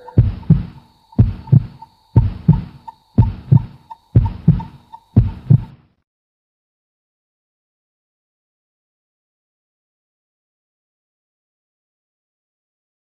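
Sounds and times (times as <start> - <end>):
faint high tone: 0.0 - 0.2
heartbeat thumps: 0.0 - 5.8.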